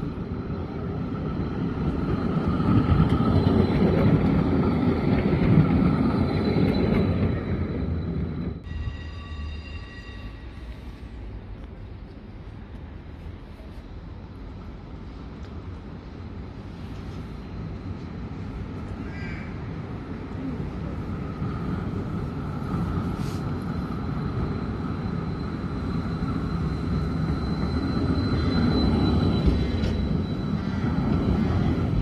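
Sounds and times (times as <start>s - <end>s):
tram rumbling: 0.0s - 32.0s
crow cawing: 19.0s - 19.6s.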